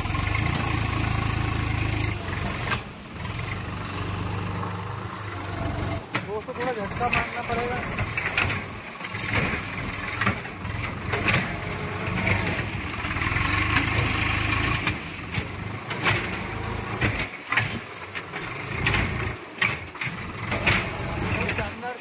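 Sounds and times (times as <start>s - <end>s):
tractor diesel engine running: 0.0s - 22.0s
sharp knocks and clicks: 6.1s - 12.7s, 13.6s - 21.8s.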